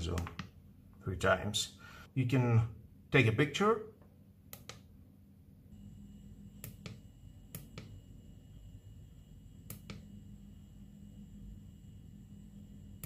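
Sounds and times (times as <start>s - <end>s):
push buttons clicking: 4.5s - 4.9s
faint high whine: 5.7s - 13.0s.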